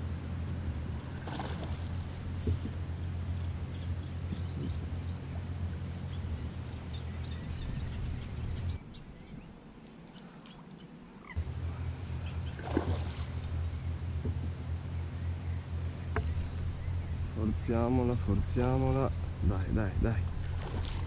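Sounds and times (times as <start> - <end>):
electric motor humming: 0.9 - 8.8.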